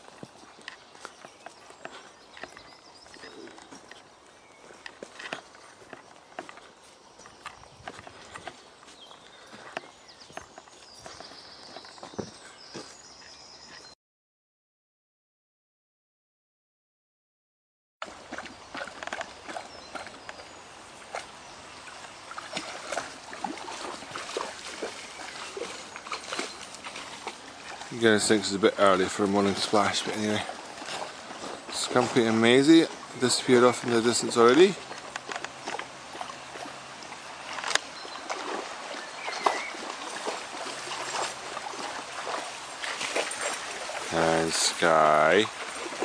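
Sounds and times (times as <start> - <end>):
dog splashing through water: 18.0 - 46.0.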